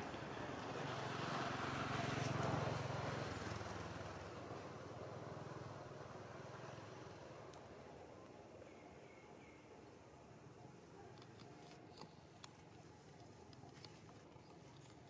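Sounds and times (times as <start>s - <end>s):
vehicle engine passing: 0.2s - 7.3s.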